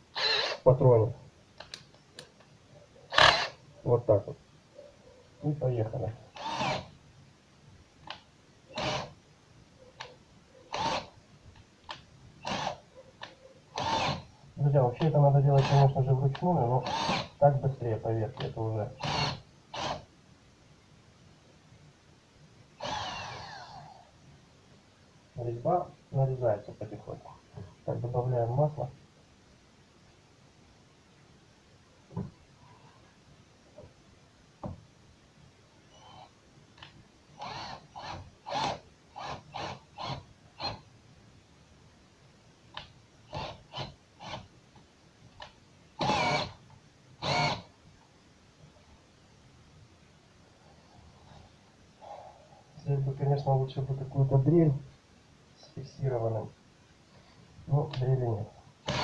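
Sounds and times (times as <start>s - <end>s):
cordless drill motor whine: 0.2s - 0.6s, 3.1s - 3.6s, 6.4s - 6.9s, 8.8s - 9.1s, 10.7s - 11.1s, 12.4s - 12.8s, 13.8s - 14.2s, 16.8s - 17.3s, 19.0s - 20.0s, 22.8s - 24.0s, 37.4s - 40.8s, 43.3s - 44.4s, 46.0s - 46.6s, 47.2s - 47.7s.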